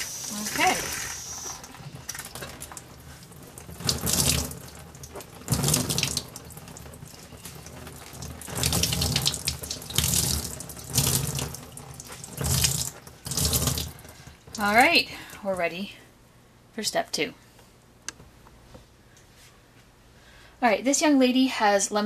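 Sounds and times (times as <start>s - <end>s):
tap water running into sink: 0.5s - 14.8s.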